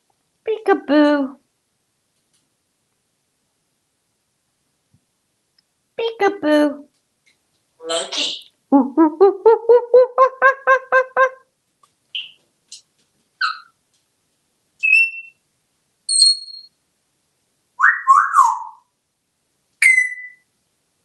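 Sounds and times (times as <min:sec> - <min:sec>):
parrot whistles and chirps: 0:13.4 - 0:13.7, 0:14.8 - 0:15.4, 0:16.1 - 0:16.7, 0:17.8 - 0:18.9, 0:19.8 - 0:20.5.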